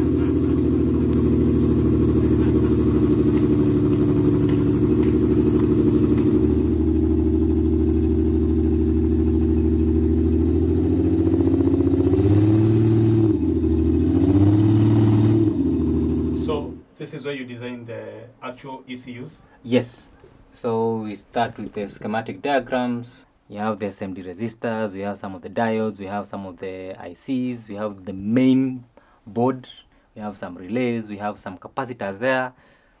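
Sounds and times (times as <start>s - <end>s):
car engine idling and revving: 0.0s - 16.4s.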